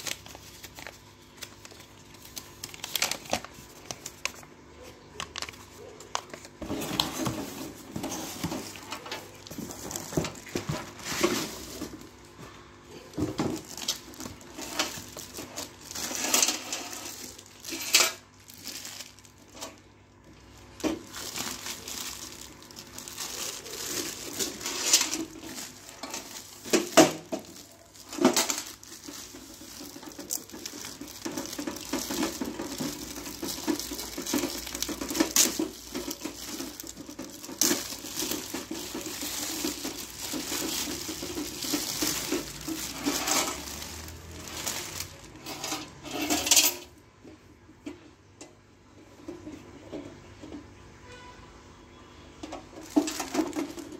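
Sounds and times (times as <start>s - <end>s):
plastic wrapping crinkling and tearing: 0.0s - 46.6s, 52.7s - 53.9s
cardboard carton rustling: 6.2s - 12.3s, 20.8s - 45.4s.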